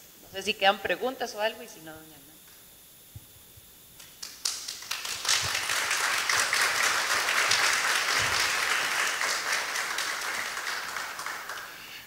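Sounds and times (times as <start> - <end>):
audience applause: 4.2 - 12.0.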